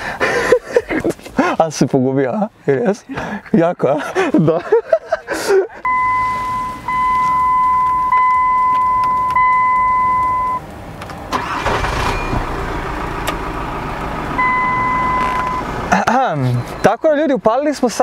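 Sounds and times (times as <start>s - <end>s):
high beep tone: 5.8s - 10.6s, 14.4s - 15.7s
car engine cranking and idling: 5.8s - 17.2s.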